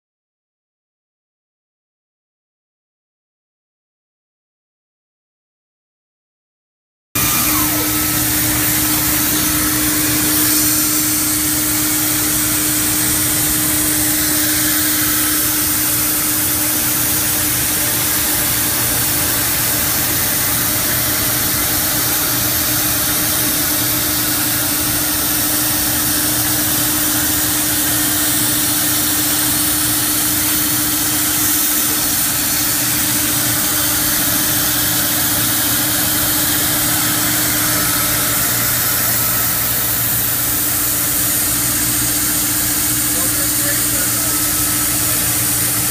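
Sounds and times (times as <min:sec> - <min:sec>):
even hiss: 0:07.2 - 0:18.6, 0:33.2 - 0:45.8
industrial machine humming: 0:07.2 - 0:45.9.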